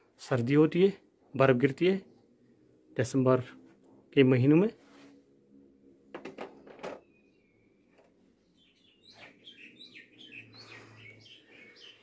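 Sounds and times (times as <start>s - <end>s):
faint birds chirping: 6.5s - 12.0s.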